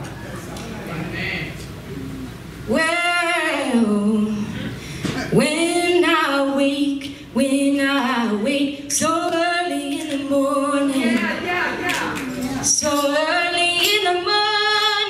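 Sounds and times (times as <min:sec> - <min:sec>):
woman singing unaccompanied: 0:02.7 - 0:04.6, 0:05.3 - 0:11.8, 0:12.5 - 0:15.0
singer breathing: 0:04.3 - 0:05.2.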